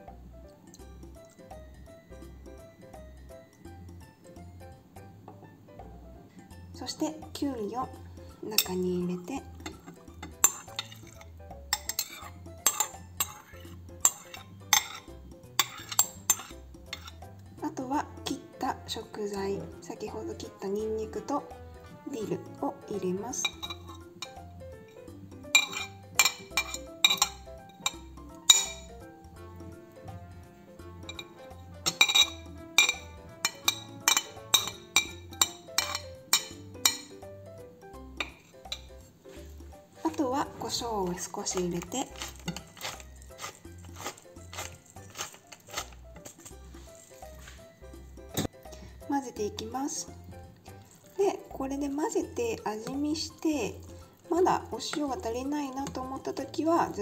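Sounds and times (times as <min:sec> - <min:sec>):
background music: 0:00.0 - 0:57.0
metal spoon clinking on bowl: 0:08.5 - 0:08.8, 0:09.6 - 0:17.3, 0:23.4 - 0:29.0, 0:31.0 - 0:37.3, 0:38.2 - 0:39.1, 0:40.1 - 0:47.2, 0:54.7 - 0:56.3.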